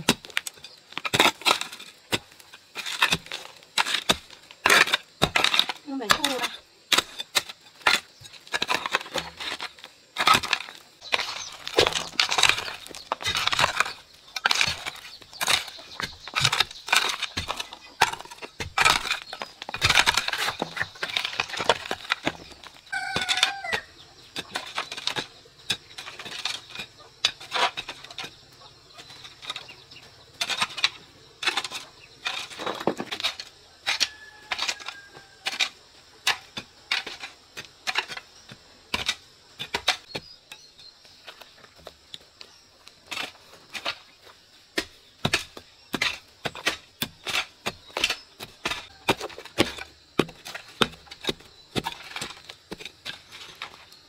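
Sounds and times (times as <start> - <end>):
chicken calling: 22.9 - 24.1.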